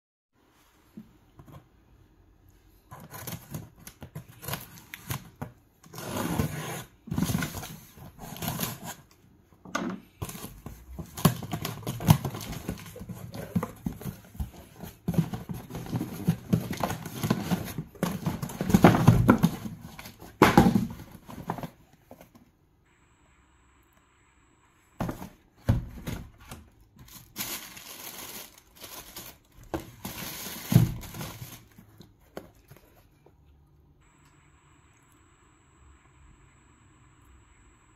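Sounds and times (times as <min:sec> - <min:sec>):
cardboard flaps scraping and rustling: 0:10.2 - 0:22.3, 0:25.0 - 0:33.0.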